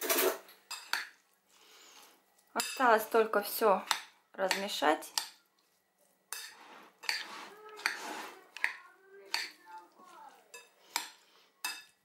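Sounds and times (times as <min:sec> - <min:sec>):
wet rustle of salad stirring: 0:00.6 - 0:12.0
spoon clinking against bowl: 0:02.6 - 0:02.8, 0:08.6 - 0:09.6, 0:10.5 - 0:12.0.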